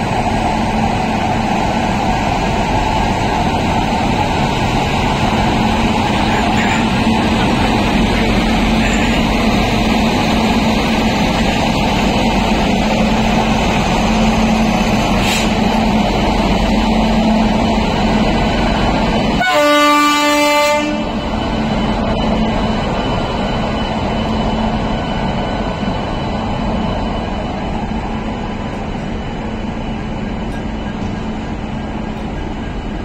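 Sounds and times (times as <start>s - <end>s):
train running by: 0.0s - 33.0s
train horn blast: 19.4s - 21.2s.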